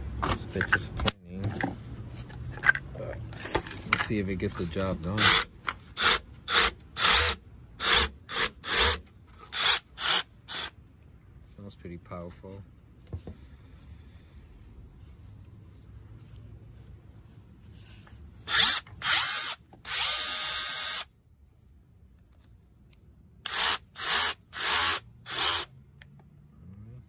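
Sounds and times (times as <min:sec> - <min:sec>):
rotary hammer drill running: 0:05.2 - 0:10.7, 0:18.5 - 0:21.1, 0:23.5 - 0:25.7.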